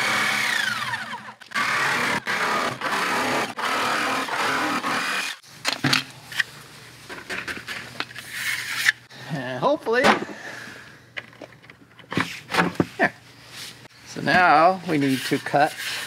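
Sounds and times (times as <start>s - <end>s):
jigsaw cutting plastic: 0.0s - 5.4s.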